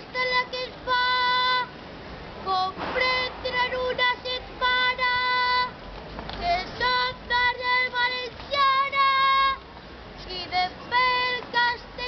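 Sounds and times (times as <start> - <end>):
boy singing solo: 0.0 - 1.8, 2.4 - 5.8, 6.4 - 9.6, 10.2 - 12.0.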